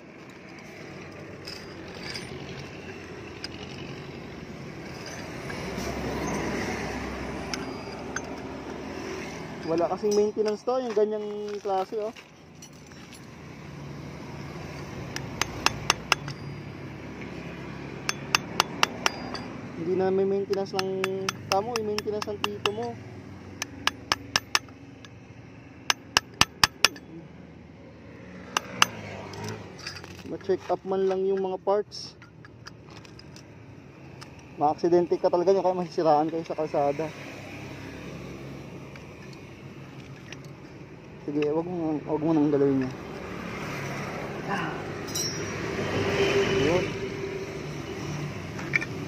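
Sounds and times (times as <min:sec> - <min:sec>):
vehicle engine passing by: 0:02.0 - 0:09.9, 0:27.1 - 0:30.1, 0:41.8 - 0:49.0
hammer striking metal: 0:15.2 - 0:16.4, 0:18.0 - 0:19.6, 0:20.5 - 0:23.0, 0:23.6 - 0:24.7, 0:25.9 - 0:27.1, 0:28.5 - 0:29.0, 0:45.1 - 0:45.7.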